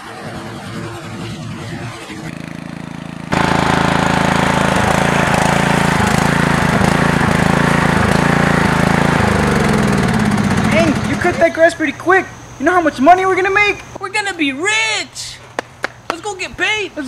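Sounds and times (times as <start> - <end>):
riding lawn mower engine running: 1.1 - 14.0.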